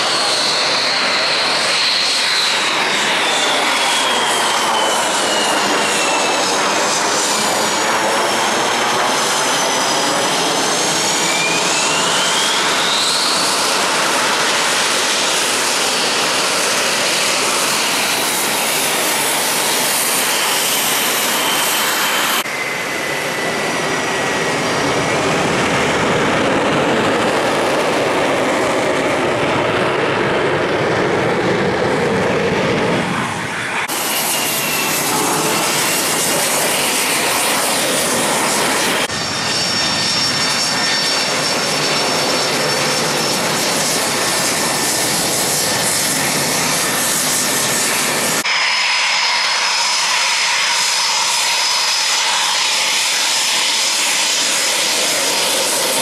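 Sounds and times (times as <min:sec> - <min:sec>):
jet engine roar with whine: 0:00.0 - 0:56.0.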